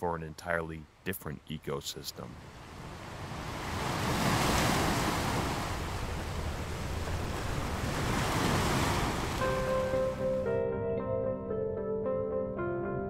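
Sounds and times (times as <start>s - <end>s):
ocean waves washing in: 1.7s - 10.5s.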